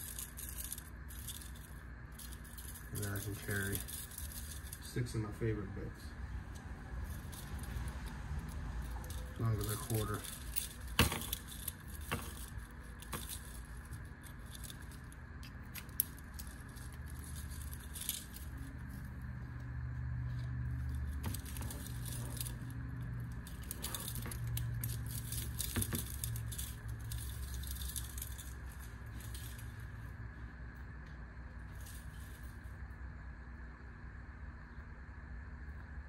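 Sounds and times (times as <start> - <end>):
metal keychain parts clicking: 0.0 - 4.9, 6.5 - 19.7, 20.3 - 29.8
low hum: 0.0 - 36.0.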